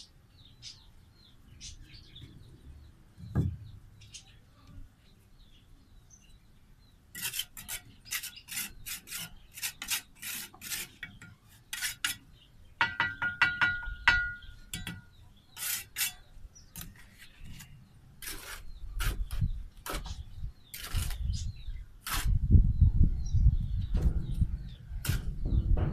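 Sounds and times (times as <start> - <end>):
trowel scraping mortar: 7.1 - 12.2, 14.8 - 22.4
ringing metallic taps: 12.8 - 15.1
low thuds of bricks set: 23.8 - 25.9.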